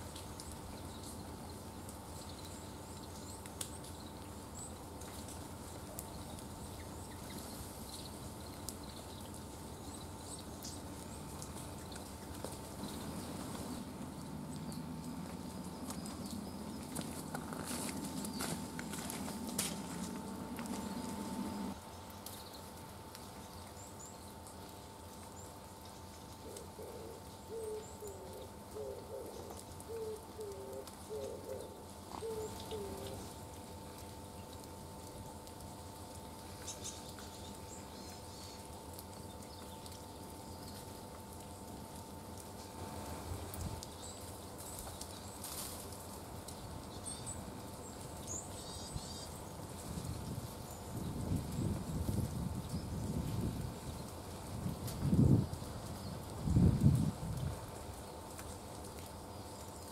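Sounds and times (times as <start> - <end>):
songbirds chirping: 0.0 - 59.9
low background rumble: 5.6 - 22.6
dove cooing: 26.4 - 33.3.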